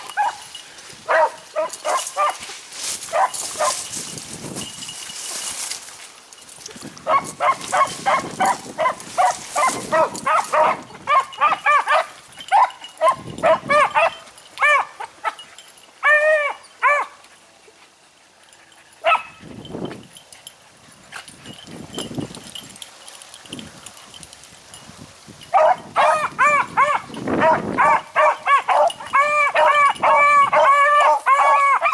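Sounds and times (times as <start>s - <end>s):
dogs baying: 0.0s - 2.5s, 7.0s - 19.5s, 25.6s - 31.9s
dogs yelping: 0.0s - 2.5s, 7.0s - 19.5s, 25.6s - 31.9s
dog barking: 1.1s - 2.4s, 3.1s - 3.8s, 7.1s - 15.0s, 25.6s - 31.9s.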